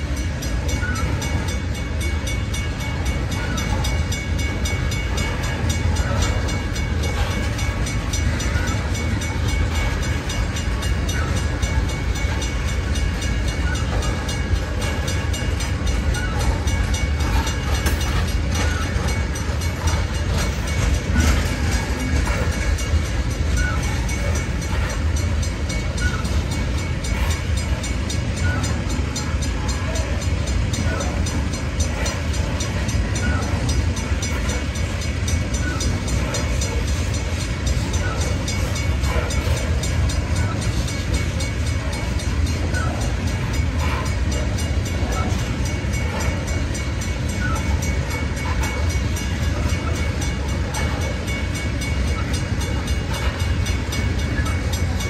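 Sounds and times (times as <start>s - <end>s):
freight cars rolling on rails: 0.0s - 55.0s.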